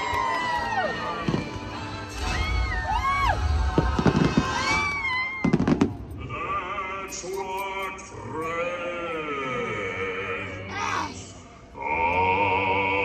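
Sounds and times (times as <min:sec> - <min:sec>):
soundtrack music: 0:00.2 - 0:05.0
fireworks banging and crackling: 0:01.0 - 0:06.5.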